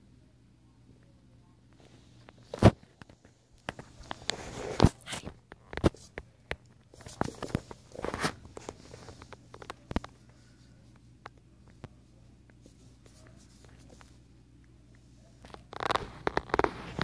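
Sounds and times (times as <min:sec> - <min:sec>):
puppy paws scuffling on wooden floor: 0:03.0 - 0:14.3.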